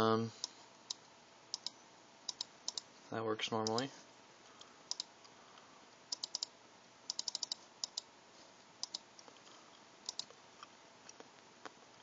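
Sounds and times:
laptop keyboard typing: 1.5s - 2.8s, 6.1s - 6.5s, 7.1s - 8.1s, 8.8s - 9.0s, 10.1s - 10.3s.

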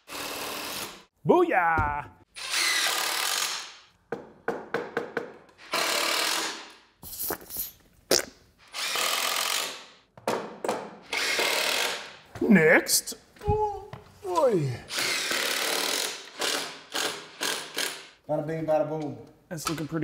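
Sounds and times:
power driver driving screws: 5.6s - 6.8s, 14.9s - 18.1s.

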